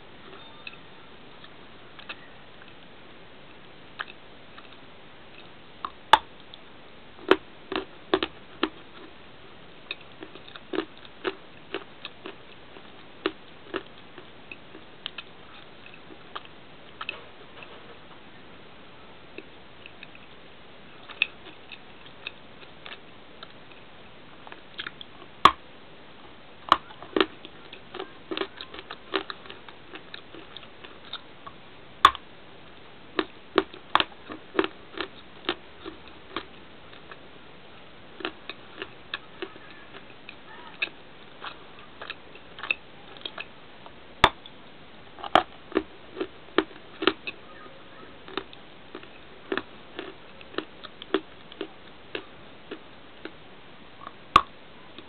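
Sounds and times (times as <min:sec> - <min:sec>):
crunchy bar being chewed: 0:07.2 - 0:09.2, 0:09.9 - 0:17.8, 0:21.0 - 0:25.6, 0:26.7 - 0:37.2, 0:38.2 - 0:44.6, 0:45.2 - 0:47.4, 0:48.2 - 0:53.4.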